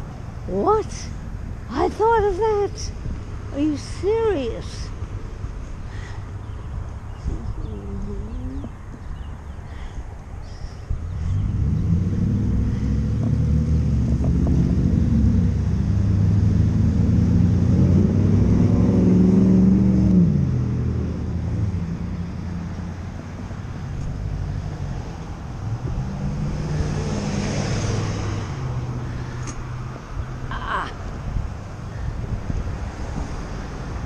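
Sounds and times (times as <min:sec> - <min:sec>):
car and truck engines accelerating: 0:10.9 - 0:34.0.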